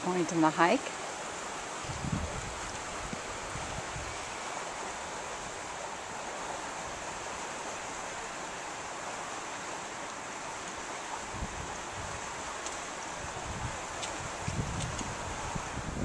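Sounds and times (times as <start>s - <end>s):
flowing water hiss: 0.0s - 16.0s.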